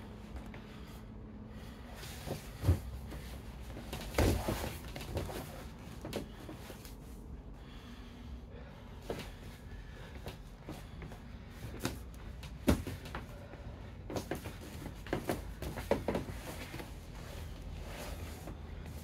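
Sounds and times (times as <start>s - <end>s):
heavy breathing: 0.0s - 19.0s
body thumping on mats: 2.2s - 5.6s, 11.8s - 13.2s.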